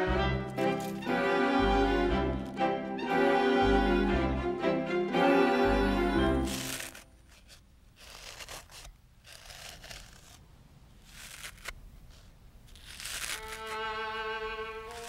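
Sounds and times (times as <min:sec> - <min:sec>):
bowed violin music: 0:00.0 - 0:07.0, 0:13.4 - 0:15.0
wrapper crinkling and tearing: 0:00.6 - 0:01.1, 0:06.4 - 0:10.4, 0:11.0 - 0:11.8, 0:12.7 - 0:13.8
sharp wrapper snap: 0:12.7 - 0:13.8.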